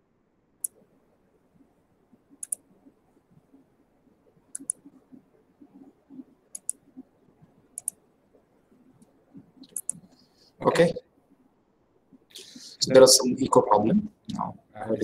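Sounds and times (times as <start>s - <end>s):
faint low background noise: 0.0s - 15.0s
sharp double clicks: 2.4s - 2.6s, 4.5s - 4.8s, 6.5s - 6.8s, 7.8s - 8.0s, 9.6s - 10.2s.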